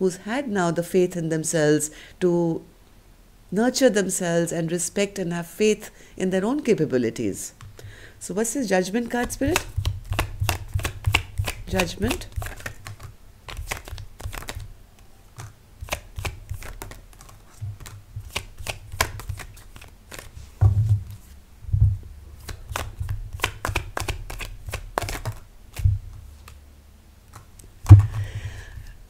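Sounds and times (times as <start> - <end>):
cards being shuffled: 9.1 - 21.4, 22.4 - 26.6, 27.3 - 29.0
dull thumps: 20.6 - 21.1, 21.7 - 22.1, 27.8 - 28.8.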